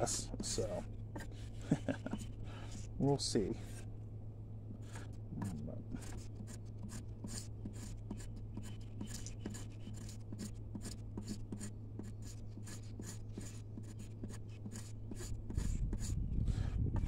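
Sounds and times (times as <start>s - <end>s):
knife scraping leaf pulp: 6.0s - 16.2s.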